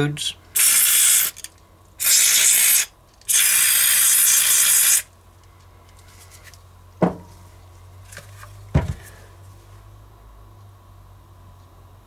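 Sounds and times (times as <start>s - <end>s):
aerosol spray hissing: 0.6s - 1.3s, 2.0s - 5.1s.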